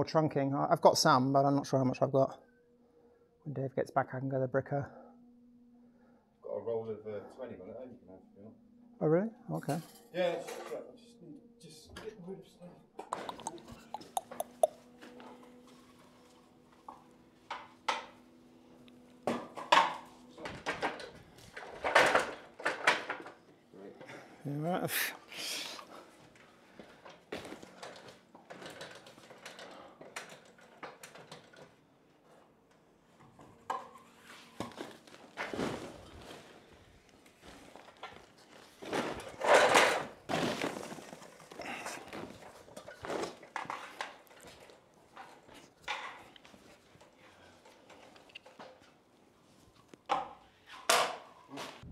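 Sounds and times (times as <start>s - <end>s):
objects knocking and clattering: 19.3s - 23.4s, 37.5s - 48.9s.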